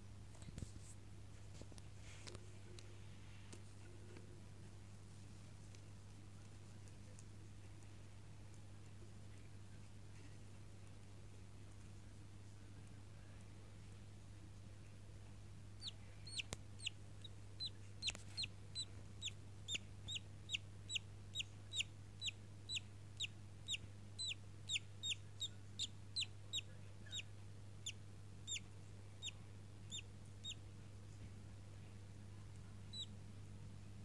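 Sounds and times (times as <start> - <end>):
budgerigar chick peeping: 15.8 - 30.6, 32.9 - 33.2.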